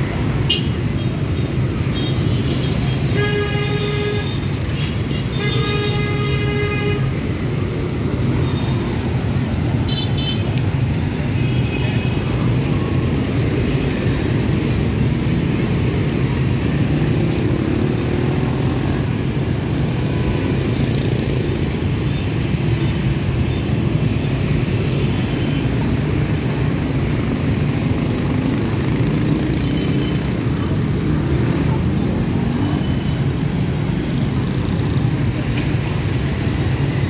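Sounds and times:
scooters and motorbikes passing: 12.1 - 37.0.

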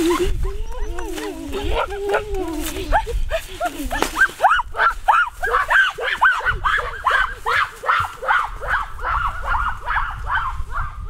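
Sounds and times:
dog yelping rapidly: 4.4 - 10.9.

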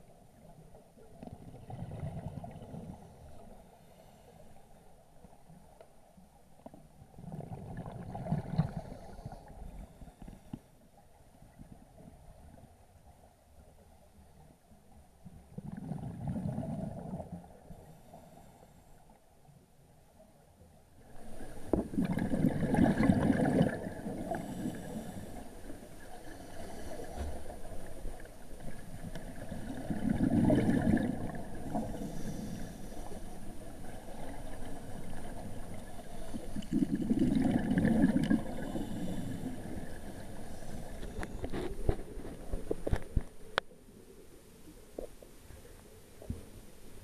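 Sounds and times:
steady water wash: 21.0 - 43.5
underwater regulator bubbles: 21.5 - 25.2, 28.6 - 32.6, 33.8 - 43.2.

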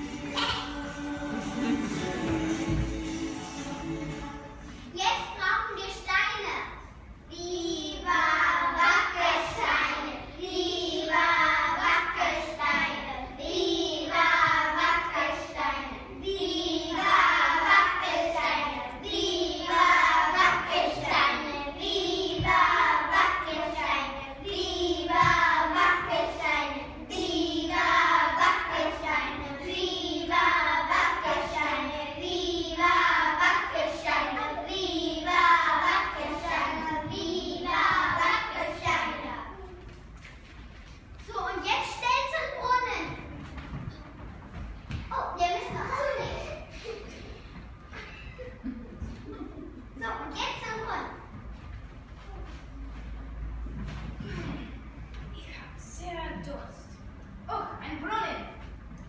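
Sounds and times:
young children singing: 0.0 - 5.4, 7.0 - 40.1.

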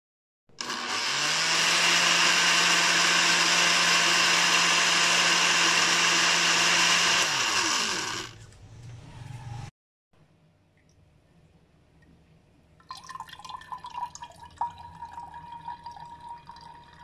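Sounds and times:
blender motor running: 0.5 - 8.4.

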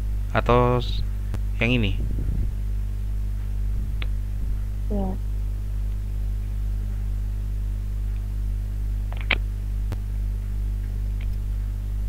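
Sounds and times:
electrical mains hum: 0.0 - 12.0
sharp click: 9.1 - 9.4.

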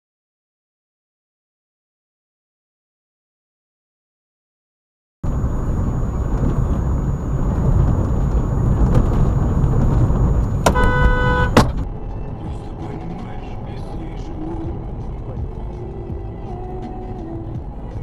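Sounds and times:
car road and engine rumble: 5.2 - 18.0
car horn: 10.5 - 11.8.

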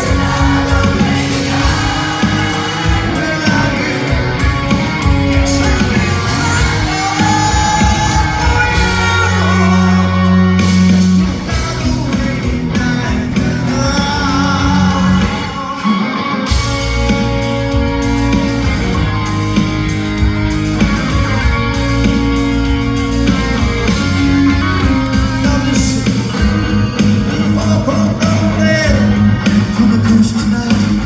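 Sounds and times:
man singing: 0.0 - 4.4, 5.2 - 16.5, 25.0 - 26.3, 27.3 - 31.0
bass guitar: 0.0 - 31.0
drums: 0.0 - 31.0
electric guitar: 0.0 - 31.0.

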